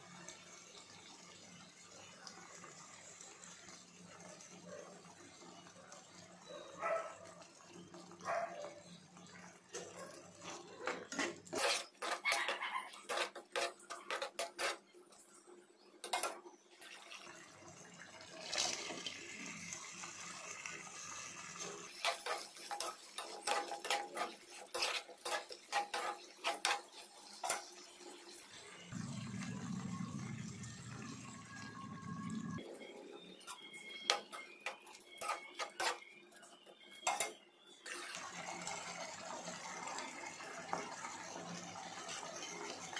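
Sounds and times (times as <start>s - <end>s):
spoon scraping in frying pan: 10.4s - 17.4s, 21.8s - 28.6s, 32.8s - 38.2s.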